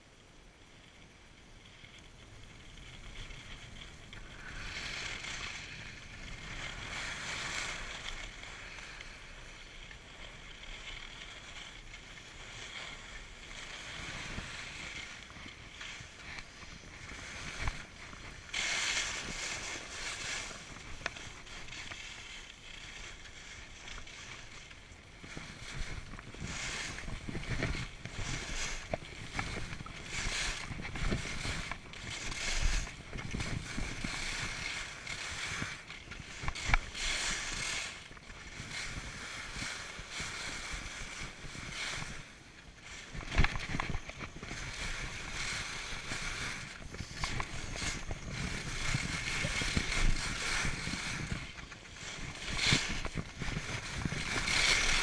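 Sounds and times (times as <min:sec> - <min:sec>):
skis scraping on snow: 0:00.5 - 0:55.0
wind on microphone: 0:02.5 - 0:55.0.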